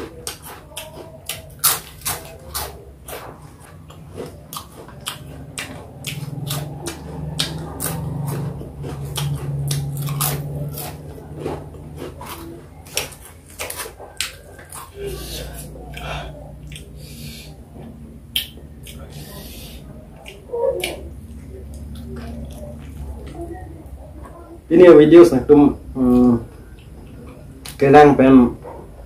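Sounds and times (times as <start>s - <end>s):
person chewing fruit: 0.0s - 24.2s, 25.9s - 28.0s
wet mouth clicks and smacks: 18.3s - 19.1s.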